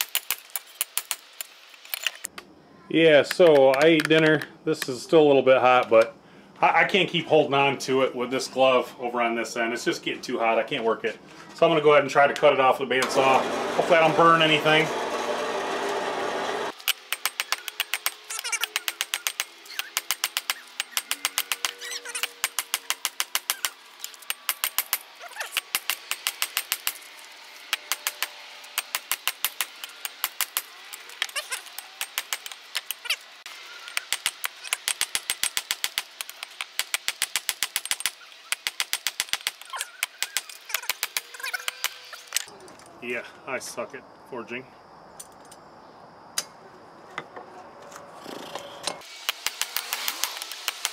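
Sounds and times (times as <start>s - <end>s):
bandsaw running: 13.0s - 42.4s, 48.4s - 50.9s.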